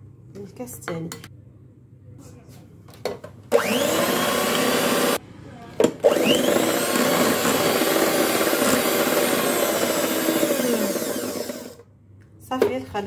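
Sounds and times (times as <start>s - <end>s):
electric hand mixer running: 3.5s - 5.2s, 6.0s - 11.8s.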